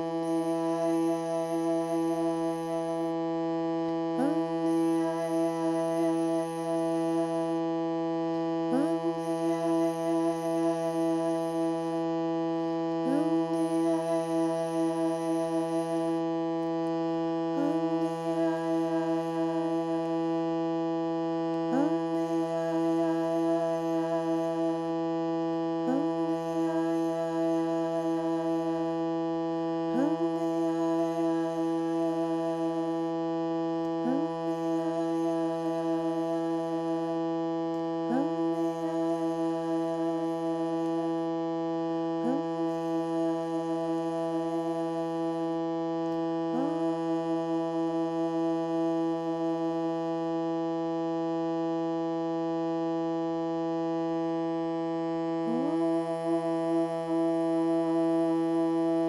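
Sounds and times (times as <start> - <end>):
reed instrument drone: 0.0 - 3.3, 4.0 - 7.8, 8.6 - 12.4, 13.0 - 16.6, 17.3 - 21.0, 21.6 - 33.2, 33.8 - 37.3, 37.9 - 40.9, 55.4 - 59.0.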